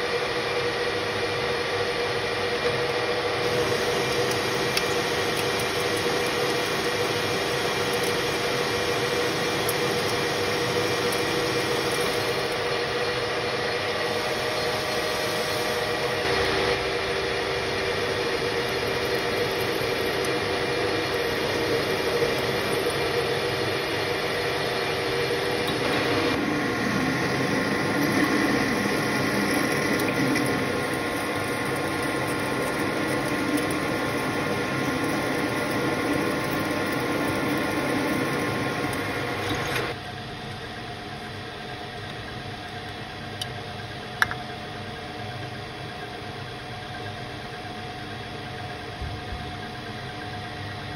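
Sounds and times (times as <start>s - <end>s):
lathe running with gear whine: 0.0s - 48.9s
drill cutting metal: 18.0s - 40.0s.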